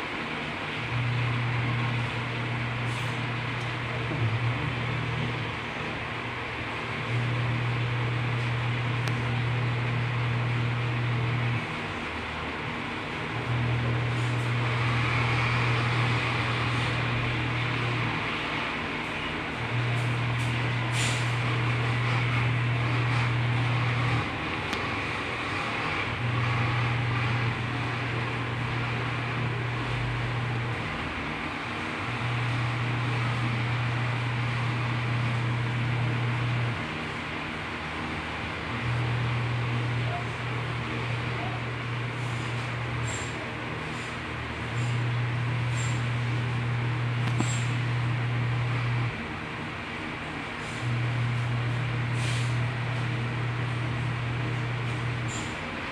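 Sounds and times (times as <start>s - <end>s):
mechanical hum: 0.0s - 55.9s
rush of background noise: 0.0s - 55.9s
hiss: 20.9s - 21.3s, 52.1s - 52.6s.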